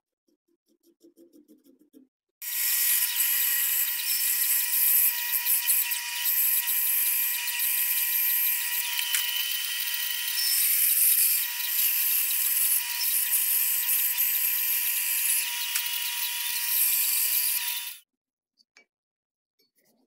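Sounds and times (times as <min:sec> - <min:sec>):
bandsaw cutting wood: 0:02.4 - 0:18.0.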